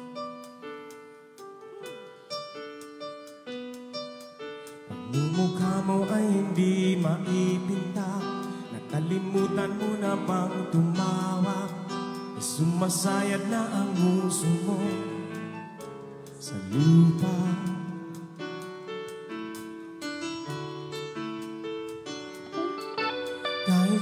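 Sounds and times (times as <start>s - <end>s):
person singing: 4.9s - 15.6s, 16.4s - 18.2s, 22.5s - 24.0s
live band playing a song: 5.5s - 24.0s.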